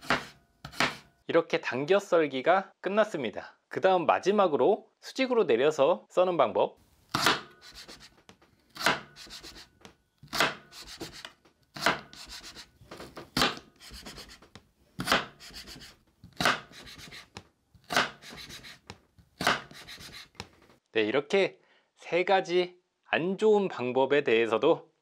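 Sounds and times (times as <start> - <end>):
knife chopping on wooden board: 0.0 - 1.1, 7.1 - 20.5
knife scraping on board: 0.0 - 1.1, 7.1 - 20.5.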